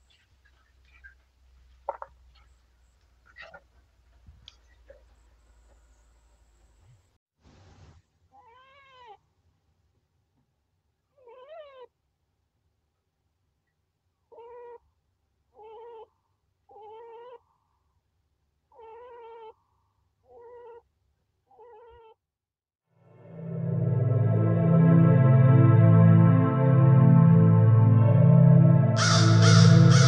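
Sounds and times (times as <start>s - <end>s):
chinchilla crying: 8.3s - 9.2s, 11.2s - 11.9s, 14.3s - 14.8s, 15.6s - 16.1s, 16.7s - 17.4s, 18.7s - 19.6s, 20.3s - 20.8s, 21.5s - 22.2s, 29.0s - 30.0s.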